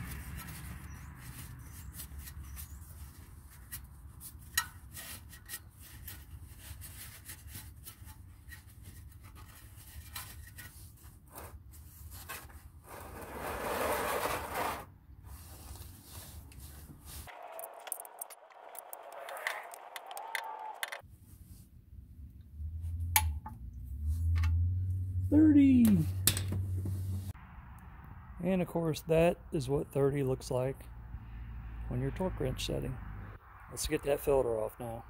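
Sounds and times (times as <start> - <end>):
plastic pan scraping concrete: 11.3 - 14.9.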